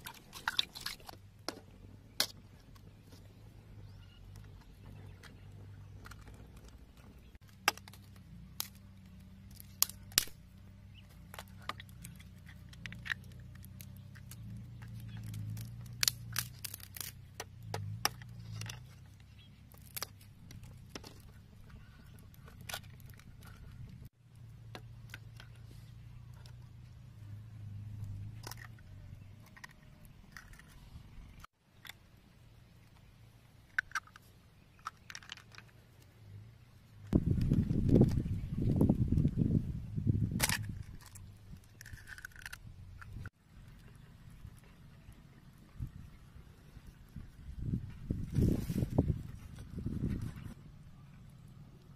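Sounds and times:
eggshells cracking against bamboo: 0.0s - 3.4s, 4.2s - 26.9s, 28.0s - 32.1s, 33.6s - 36.2s, 40.3s - 44.7s.

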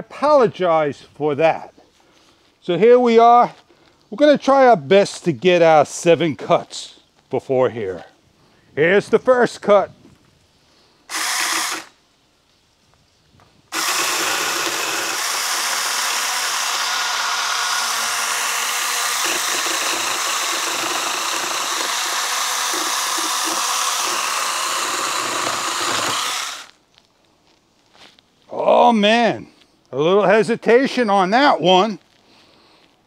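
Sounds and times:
chainsaw cutting a log: 11.1s - 11.9s, 13.7s - 26.8s.

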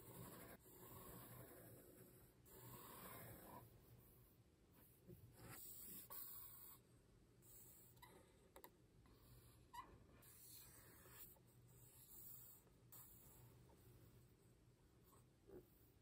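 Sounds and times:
marker scratching on paper: 0.0s - 6.8s, 9.1s - 14.0s.

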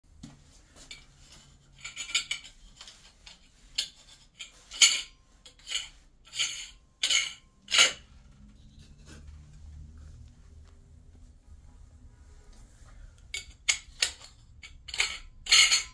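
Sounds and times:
metallic clinks and scrapes: 0.8s - 9.6s, 13.2s - 15.9s.

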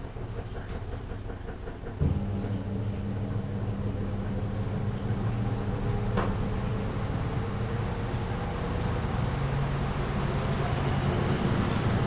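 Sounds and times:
washing machine tub ticking: 0.0s - 8.2s
washing machine motor hum: 0.0s - 12.0s.

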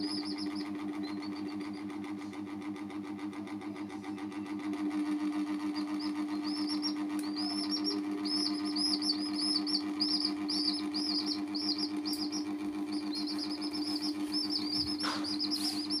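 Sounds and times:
chicks peeping: 0.0s - 2.0s, 5.8s - 16.0s
low hum: 5.1s - 16.0s.

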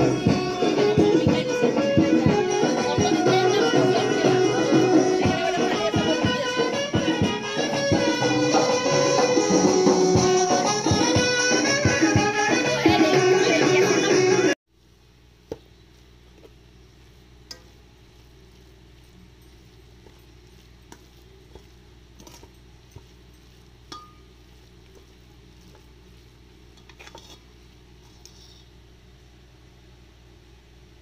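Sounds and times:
background music: 0.0s - 14.6s
faint steady hum: 14.7s - 31.0s
metal spatula scraping pan: 20.9s - 24.3s, 26.8s - 28.7s.

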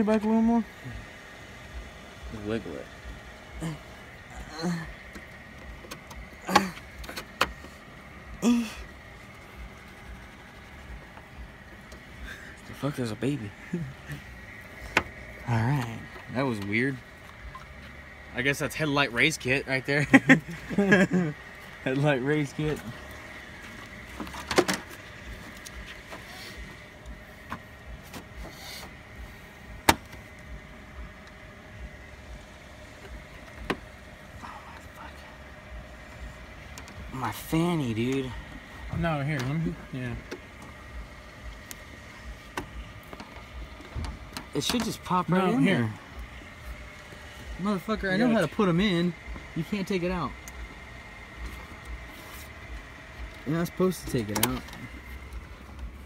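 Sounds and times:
faint steady hum: 0.0s - 56.0s
person grunting: 3.6s - 5.0s, 6.4s - 6.8s, 8.4s - 8.9s.

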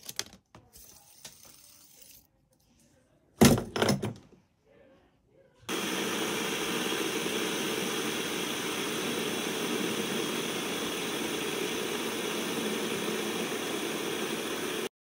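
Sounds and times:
fidget spinners whirring: 0.7s - 2.3s.

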